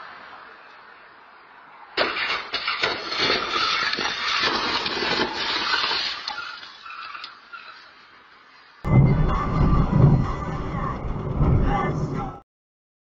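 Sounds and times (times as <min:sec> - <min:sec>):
car crash impact: 0:02.0 - 0:06.4
crunching and clattering debris: 0:02.1 - 0:07.3.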